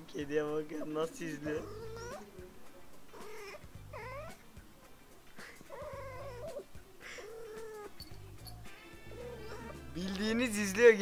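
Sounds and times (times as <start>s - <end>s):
cat yowling: 1.4s - 2.3s, 3.1s - 4.4s, 5.7s - 10.0s.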